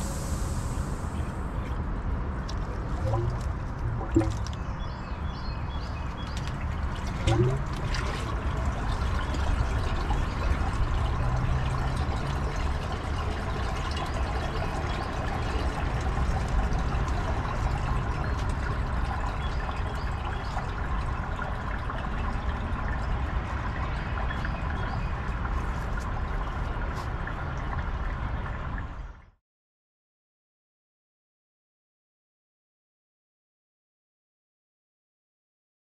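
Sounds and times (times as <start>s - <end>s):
water trickling from a hose: 2.4s - 5.0s, 5.7s - 29.2s.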